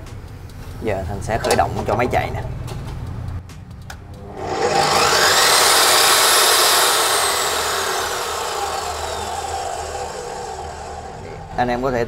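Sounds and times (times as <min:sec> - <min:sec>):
chop saw motor whine: 0:04.2 - 0:11.9.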